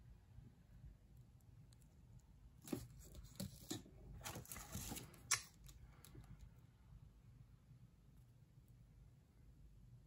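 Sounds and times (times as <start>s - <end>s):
plastic wrap and paper rustling: 2.7s - 5.4s.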